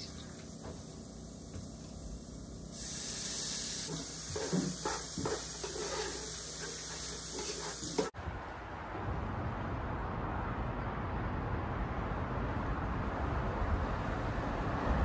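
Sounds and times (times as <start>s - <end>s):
vegetables sizzling in a pot: 0.0s - 8.2s
wooden spatula scraping: 3.9s - 8.1s.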